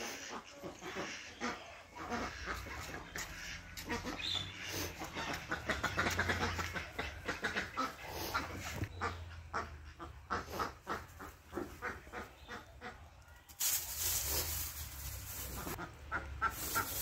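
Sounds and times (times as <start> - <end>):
ducks quacking: 0.0 - 13.2, 14.0 - 17.0
rustling hiss: 13.6 - 15.8.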